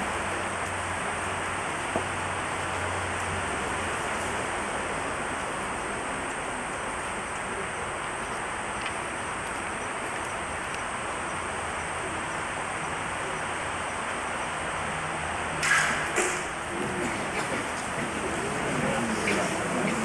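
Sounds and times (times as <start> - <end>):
tape hiss: 0.0 - 20.0
arrow striking target: 15.6 - 16.5
faint voices: 16.4 - 20.0.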